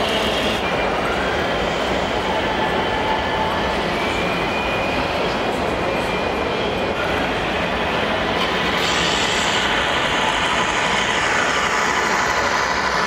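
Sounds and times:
exhibition hall din: 0:00.0 - 0:13.0.

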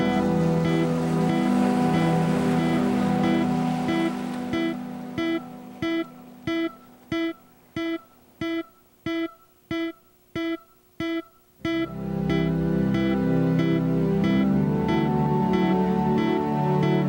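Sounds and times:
held chord: 0:00.0 - 0:07.4, 0:11.6 - 0:17.0
repeated plucked note: 0:00.0 - 0:17.0.

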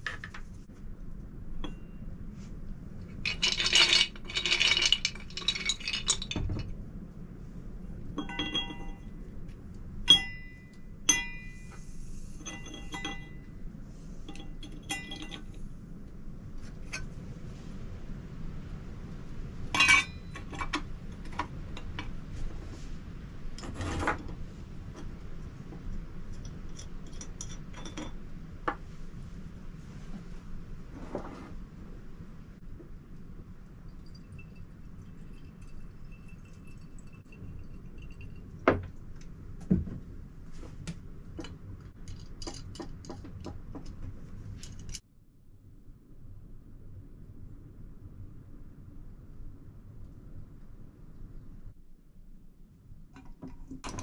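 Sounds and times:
metal parts clinking: 0:03.2 - 0:06.7, 0:12.4 - 0:13.4, 0:14.3 - 0:15.6, 0:19.8 - 0:20.8.

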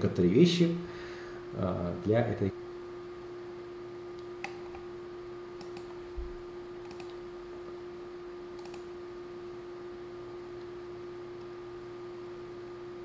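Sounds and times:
electrical hum: 0:00.0 - 0:13.0
computer clicks: 0:05.6 - 0:06.0, 0:06.8 - 0:07.2, 0:08.6 - 0:08.9.

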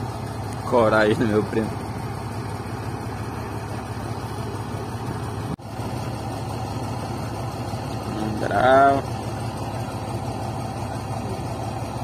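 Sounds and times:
diesel truck engine idling: 0:00.0 - 0:12.0.

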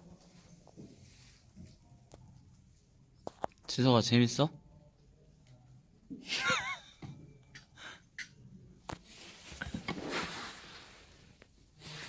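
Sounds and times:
rustling: 0:08.9 - 0:12.0.

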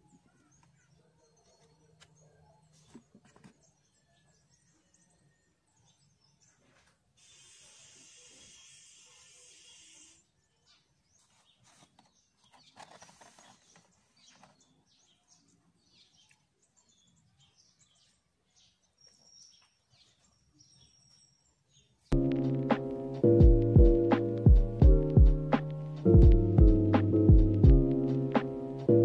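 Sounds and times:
loud piano music: 0:22.2 - 0:29.0.

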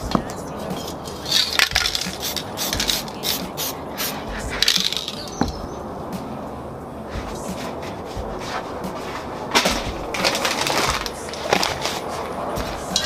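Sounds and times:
spray paint can hissing: 0:00.9 - 0:05.4.

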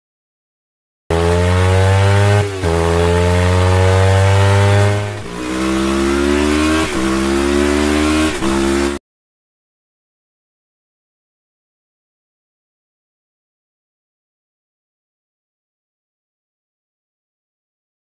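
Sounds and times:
motorcycle engine accelerating: 0:01.1 - 0:09.0.

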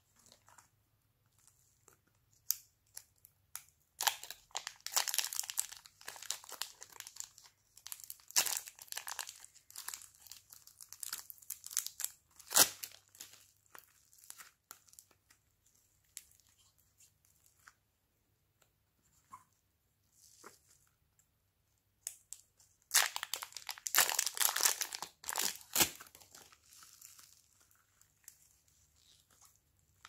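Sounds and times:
plastic wrapper crinkling and tearing: 0:02.4 - 0:15.4, 0:22.1 - 0:30.0.

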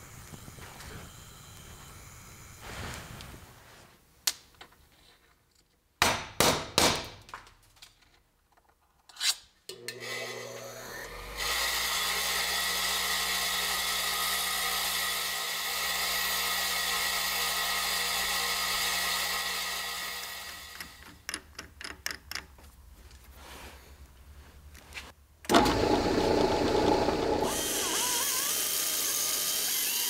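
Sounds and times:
power tool running: 0:09.7 - 0:21.0, 0:25.5 - 0:30.0.

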